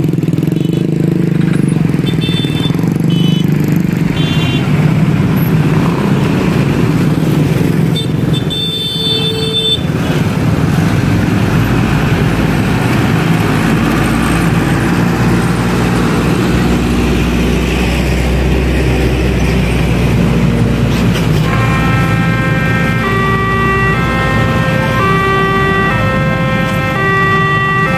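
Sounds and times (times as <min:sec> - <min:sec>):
slow road traffic engines: 0:00.0 - 0:27.9
vehicle horn: 0:02.0 - 0:03.5, 0:04.2 - 0:04.6, 0:08.0 - 0:09.9, 0:21.2 - 0:27.9
heavy engine rumbling low: 0:09.9 - 0:27.9
steady tones stepping in pitch: 0:21.4 - 0:27.9.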